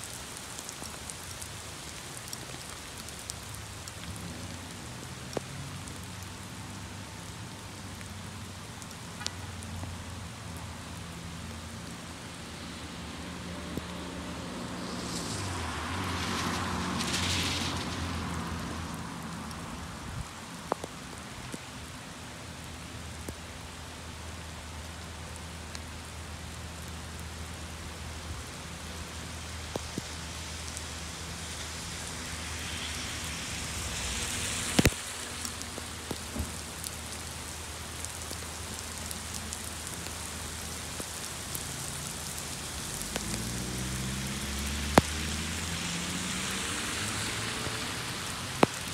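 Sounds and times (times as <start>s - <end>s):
car tyres hissing on wet road: 0.0s - 48.9s
heavy rain on street: 0.0s - 48.9s
car engine approaching: 42.8s - 48.9s.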